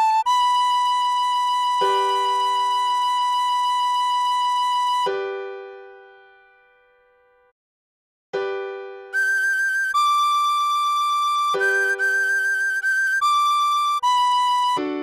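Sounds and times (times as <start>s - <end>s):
tin whistle high note: 9.2s - 14.8s.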